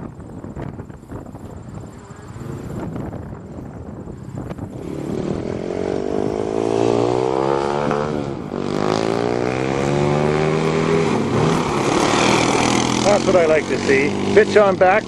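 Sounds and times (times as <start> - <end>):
pickup truck engine revving: 4.6 - 15.0.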